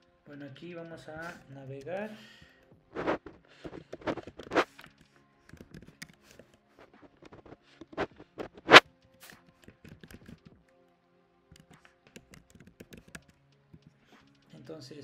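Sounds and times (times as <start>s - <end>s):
faint background music: 0.0s - 15.0s
keyboard typing clicks: 11.5s - 13.3s.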